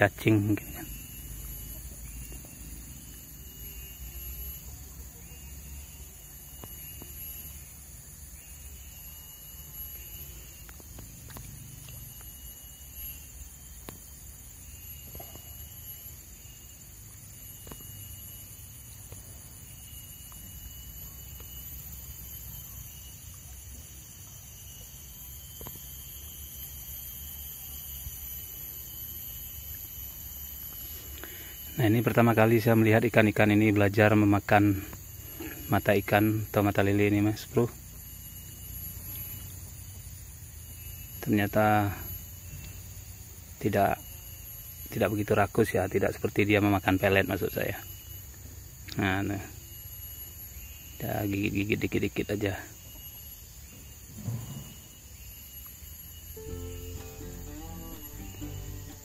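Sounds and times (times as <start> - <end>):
insects chirring: 0.0 - 59.0
pulsed insect trill: 0.0 - 59.0
faint ticks: 10.6 - 12.4.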